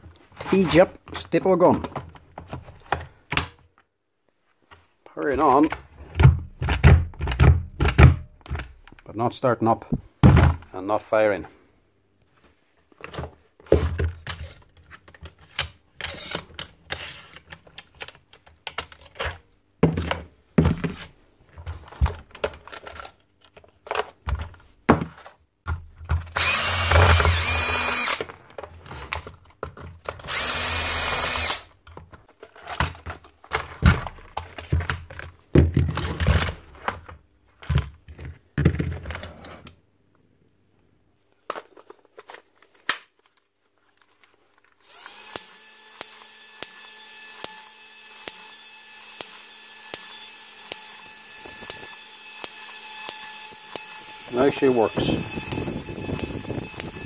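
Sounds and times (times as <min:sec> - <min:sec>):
plastic parts knocking and clicking: 0:05.3 - 0:09.1, 0:09.9 - 0:10.7, 0:13.0 - 0:27.4, 0:28.2 - 0:30.4, 0:31.8 - 0:39.3
power driver whining: 0:26.3 - 0:28.3, 0:30.3 - 0:31.7, 0:44.9 - 0:57.0.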